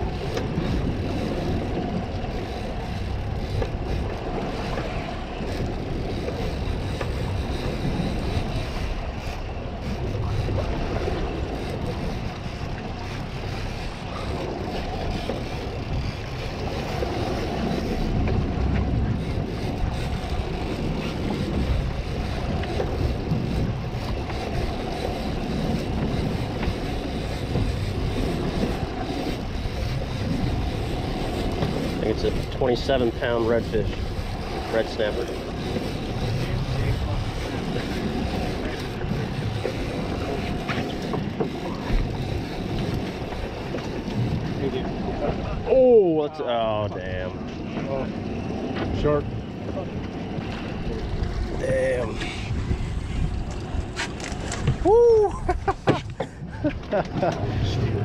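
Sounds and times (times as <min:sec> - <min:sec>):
water sloshing against a hull: 0:00.0 - 0:58.0
wind buffeting the microphone: 0:00.0 - 0:58.0.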